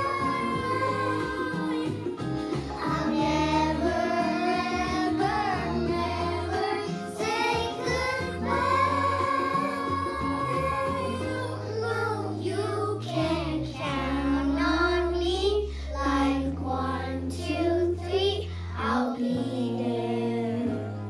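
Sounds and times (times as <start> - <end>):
instrumental accompaniment: 0.0 - 14.9
children singing: 0.0 - 21.0.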